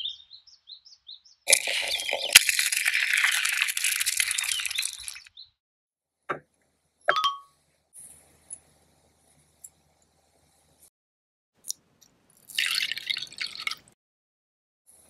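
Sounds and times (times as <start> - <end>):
seasoning packet crinkling: 1.5 - 5.3.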